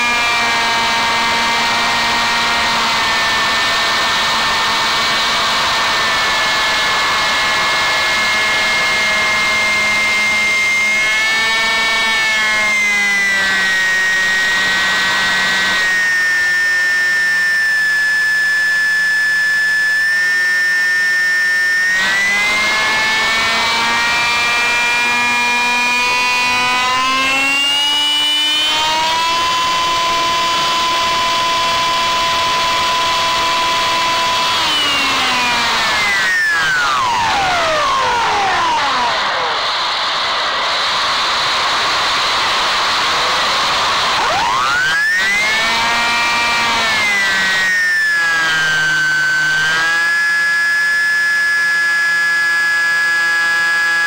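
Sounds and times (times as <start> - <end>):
electric motor and propeller whine: 0.0 - 54.0.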